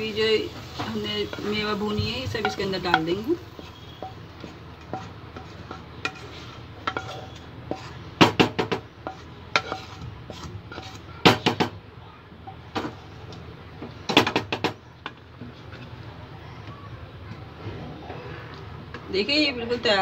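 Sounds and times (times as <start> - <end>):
spoon scraping metal pot: 2.3 - 8.1, 9.0 - 11.1.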